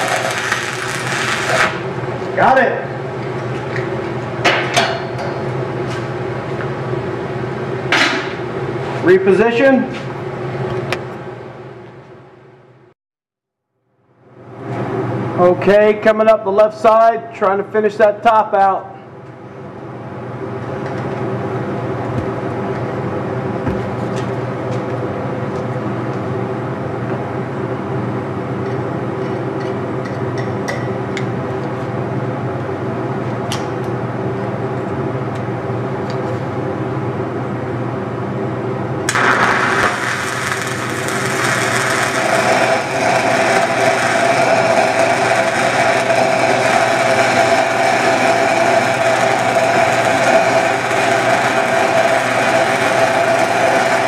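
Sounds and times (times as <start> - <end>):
welding arc crackling: 0.0 - 2.0, 39.1 - 54.0
steady machine drone: 0.0 - 12.9, 18.6 - 54.0.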